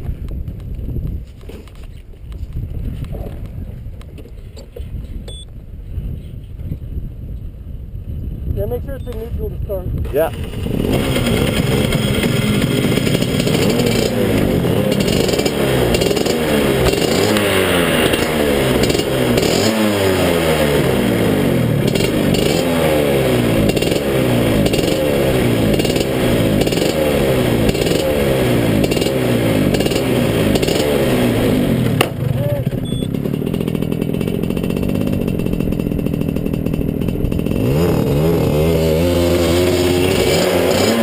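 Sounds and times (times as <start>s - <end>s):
kart engine revving: 10.2s - 41.0s.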